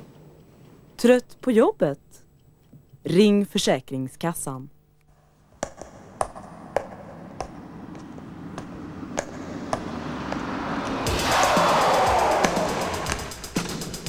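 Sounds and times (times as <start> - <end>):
rushing noise: 7.6 - 14.0.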